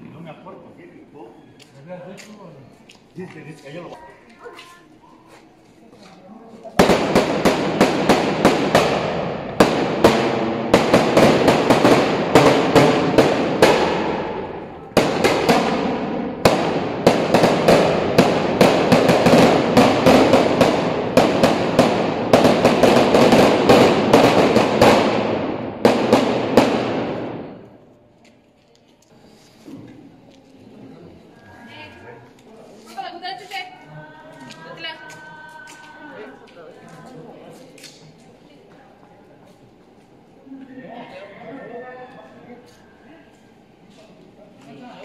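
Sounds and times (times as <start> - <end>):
firecrackers cracking rapidly: 6.7 - 27.8.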